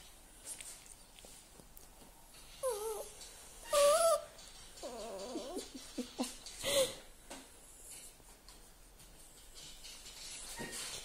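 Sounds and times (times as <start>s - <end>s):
dog moaning: 2.6s - 6.2s.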